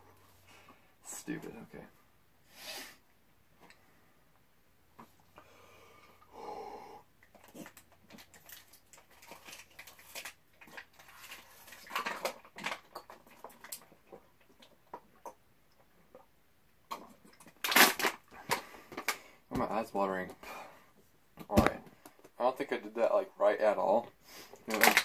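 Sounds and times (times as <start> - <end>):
person breathing: 5.3 - 7.1, 18.3 - 19.5, 20.4 - 21.0
plastic bottle crinkling: 7.3 - 15.2, 16.9 - 19.8, 24.6 - 25.0
person gulping water: 12.9 - 17.6.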